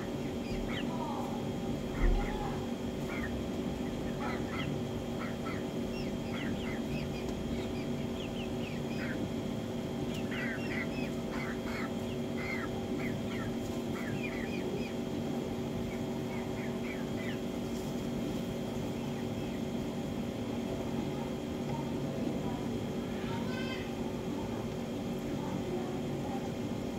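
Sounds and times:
hens calling: 0:00.0 - 0:17.7
steady hum: 0:00.0 - 0:26.9.

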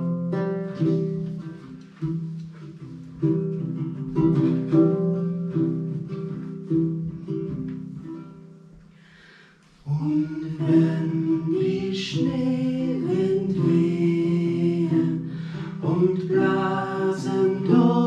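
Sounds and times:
acoustic guitar: 0:00.0 - 0:18.0
person singing slow melody: 0:09.8 - 0:18.0.

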